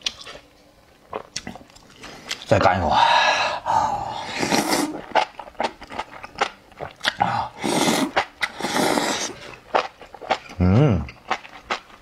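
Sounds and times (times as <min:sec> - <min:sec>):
person slurping: 0:03.3 - 0:06.2, 0:06.8 - 0:11.4
wet chewing: 0:04.5 - 0:12.0.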